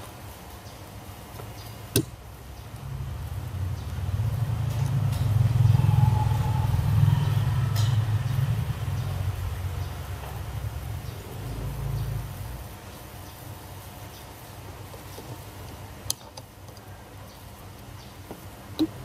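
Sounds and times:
passing vehicle engine rumble: 2.5 - 13.1.

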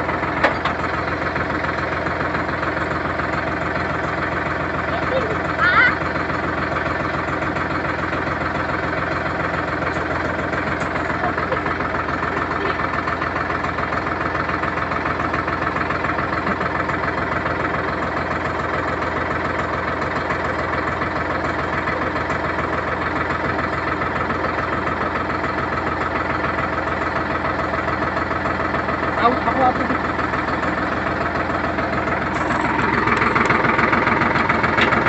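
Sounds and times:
tractor diesel engine idling: 0.0 - 35.0.

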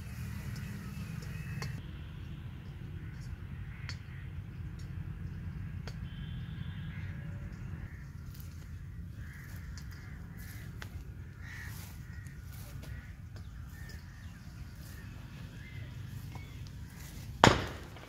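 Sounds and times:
steady low rumble: 0.0 - 18.0
crows cawing: 3.0 - 4.6, 5.6 - 18.0.

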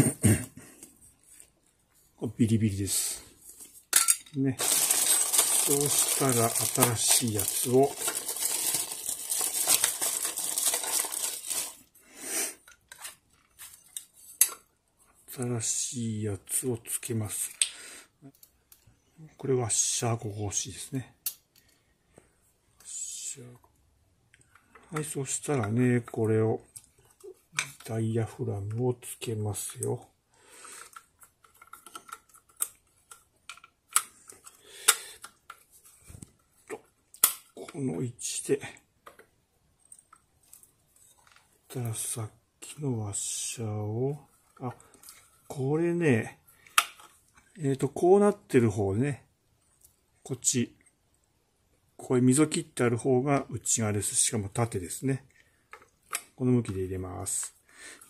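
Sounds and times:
plastic crinkling and rustling: 4.5 - 11.9
plastic and metal parts clicking: 30.8 - 35.6.

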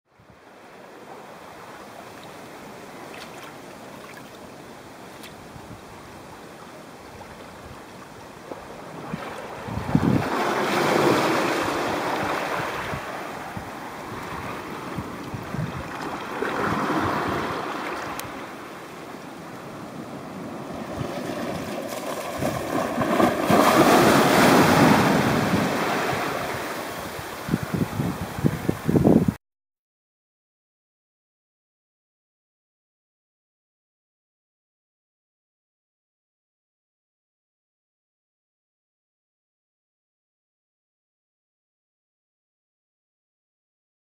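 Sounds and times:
sea waves breaking: 0.3 - 29.1
wind buffeting microphone: 8.5 - 18.4, 19.7 - 29.4.

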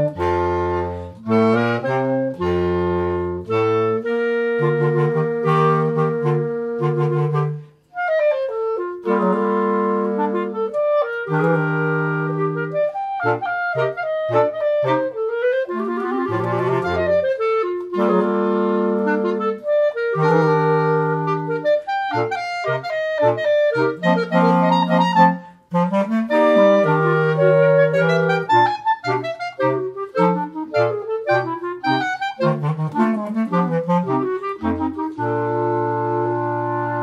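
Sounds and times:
clarinet quartet playing: 0.0 - 37.0.

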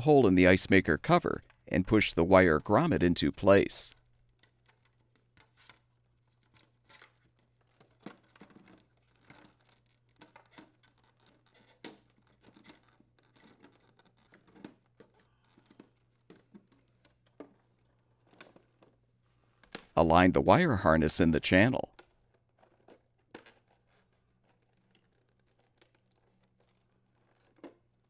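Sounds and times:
hands handling plastic parts: 4.0 - 20.0, 21.9 - 28.0.

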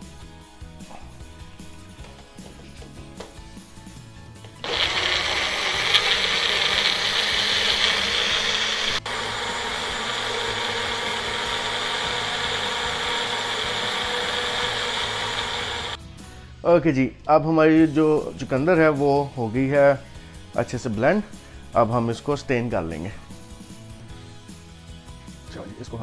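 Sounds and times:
blender running: 4.6 - 16.0.

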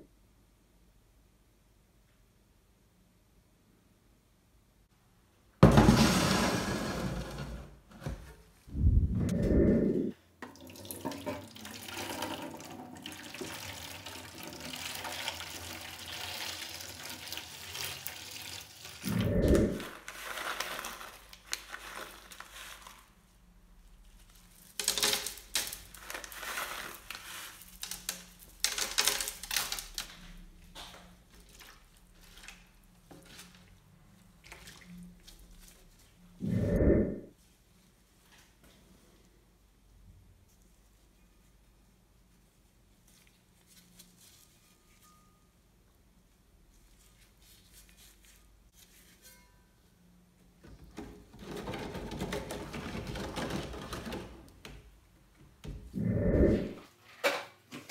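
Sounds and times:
water pouring into plastic crate: 10.5 - 19.1.

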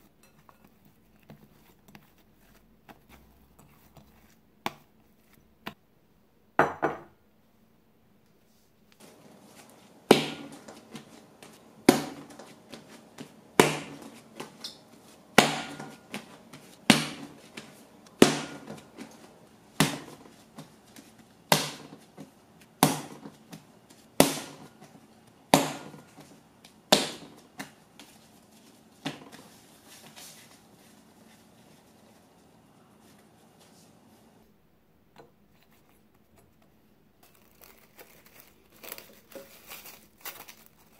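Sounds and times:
soft rubbing of dough: 0.0 - 5.7, 8.4 - 34.5
dough slapped on countertop: 10.1 - 11.1, 11.8 - 14.7, 15.4 - 19.2, 19.8 - 20.7, 21.5 - 22.0, 22.8 - 24.7, 25.5 - 27.8.

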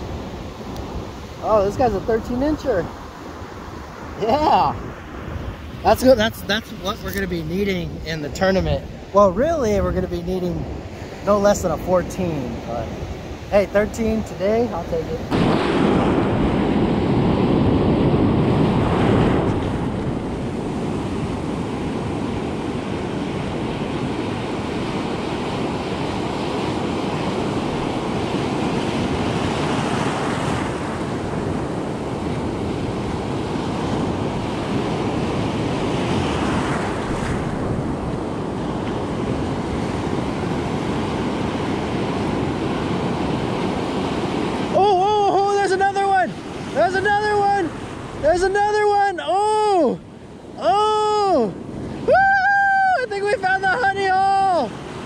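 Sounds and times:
ocean surf breaking: 0.0 - 55.0.

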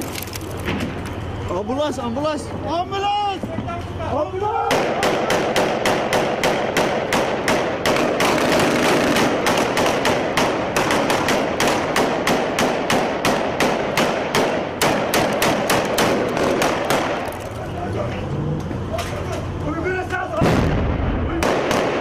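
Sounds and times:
rapid rifle gunfire: 4.7 - 17.2, 21.3 - 22.0.

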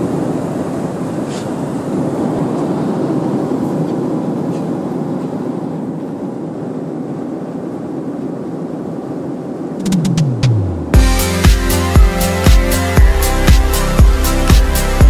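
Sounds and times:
airliner cabin roar: 0.0 - 15.0
falling tone: 9.7 - 15.0.

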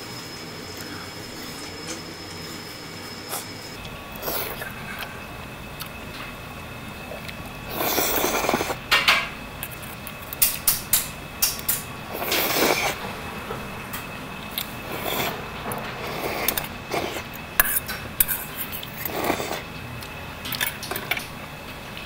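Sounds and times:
slurping noodles: 4.2 - 5.1, 7.2 - 8.8, 12.1 - 13.0, 14.6 - 19.7.

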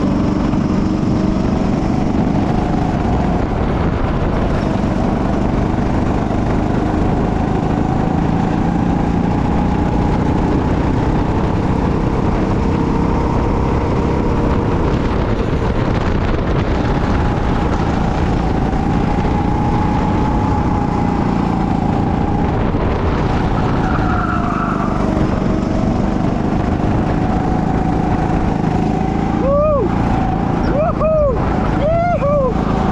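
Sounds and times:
go-kart engine running: 0.0 - 32.9
steady rush of noise: 13.9 - 32.9.

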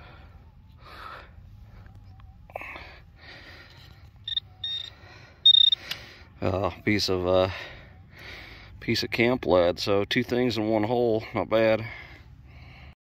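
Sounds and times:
metal detector high beeps: 3.7 - 6.0.

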